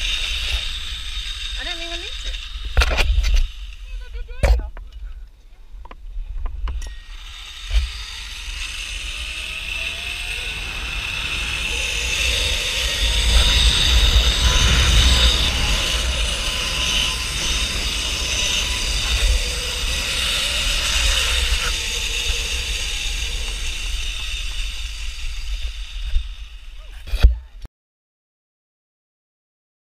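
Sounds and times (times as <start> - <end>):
zip-line pulleys whirring on cable: 0.0 - 4.4, 6.7 - 27.3
wind rumble on microphone: 7.8 - 27.5.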